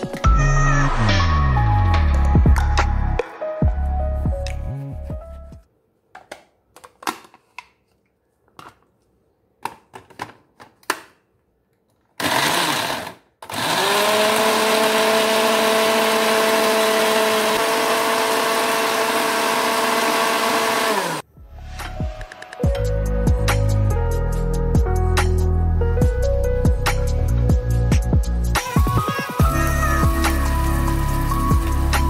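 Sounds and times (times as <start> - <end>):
electric blender grinding: 12.2 - 21.2, 29.5 - 32.0.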